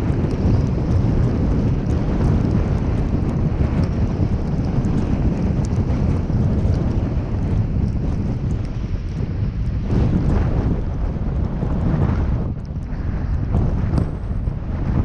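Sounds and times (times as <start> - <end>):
faint ticks: 0.0 - 9.8
car road and wind noise: 0.0 - 15.0.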